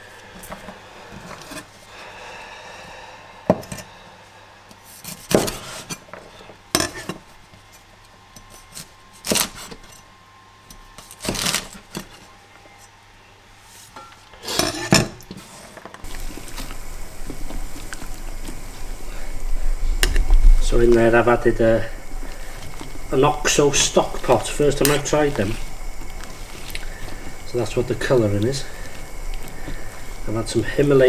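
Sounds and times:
steady low rumble: 16.0s - 31.0s.

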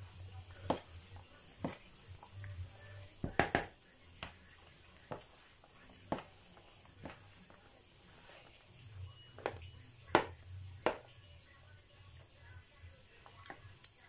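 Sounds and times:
taps and knocks in plastic bowl: 3.2s - 4.4s, 9.4s - 11.1s.

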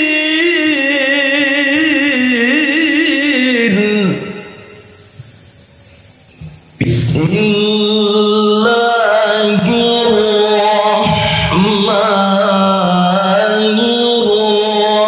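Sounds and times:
man chanting into a microphone: 0.0s - 5.0s, 6.8s - 15.0s.

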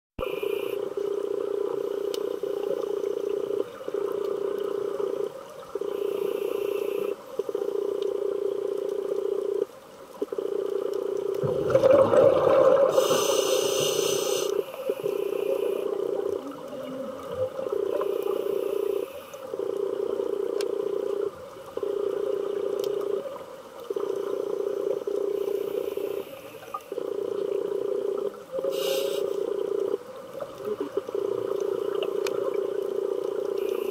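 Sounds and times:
underwater droning hum: 0.2s - 33.9s
scuba regulator breathing: 5.9s - 7.2s, 12.9s - 16.2s, 17.9s - 19.5s, 25.4s - 26.7s, 28.7s - 29.6s
exhaled bubbles: 11.4s - 25.5s.

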